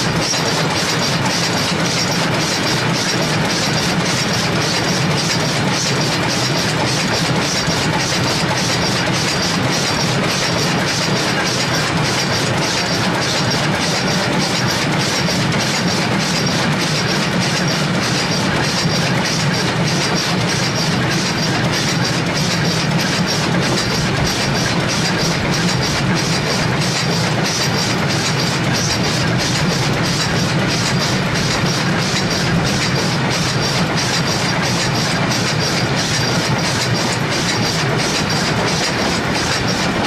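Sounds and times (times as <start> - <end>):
steam locomotive running: 0.0 - 40.0.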